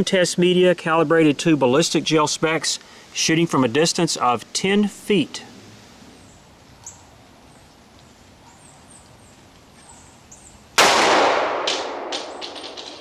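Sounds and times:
gunshot echoes: 10.8s - 13.0s
loud pistol shot: 10.8s - 13.0s.

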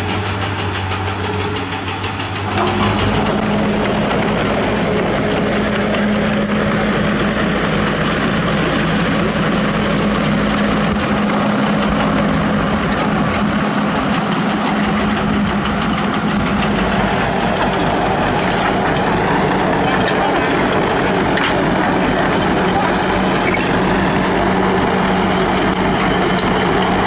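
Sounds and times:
excavator diesel engines running: 0.0s - 27.0s
digging rubble: 2.0s - 27.0s.

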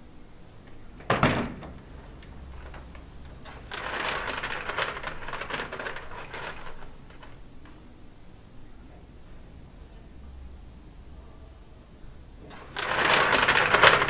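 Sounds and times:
paper bag crinkling: 1.7s - 7.4s, 12.5s - 14.0s
paper snap: 1.7s - 7.8s, 12.5s - 14.0s.

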